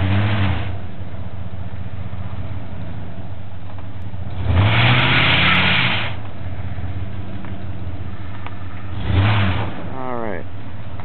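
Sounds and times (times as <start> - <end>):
pickup engine idling and revving: 0.0 - 11.0.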